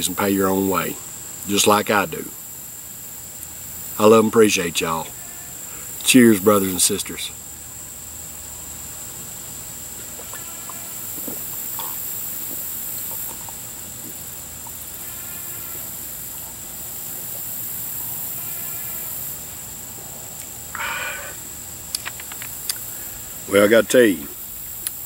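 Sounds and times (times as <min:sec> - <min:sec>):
high-pitched insect drone: 0:00.0 - 0:25.0
person swallowing: 0:11.1 - 0:14.8
breathy exhale: 0:20.7 - 0:21.4
small clicks: 0:21.9 - 0:22.8.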